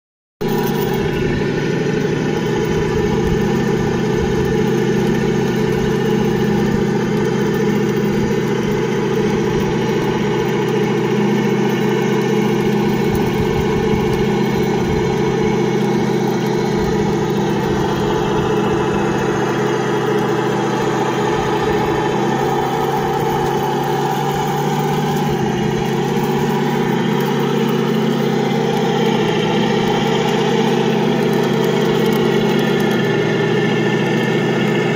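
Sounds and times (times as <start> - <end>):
model tank engine idling: 0.4 - 34.9.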